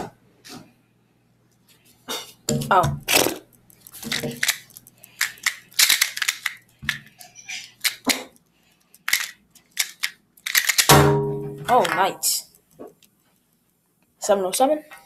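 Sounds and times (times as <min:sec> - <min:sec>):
plastic puzzle cube clicking: 0:03.7 - 0:07.0, 0:08.9 - 0:10.9.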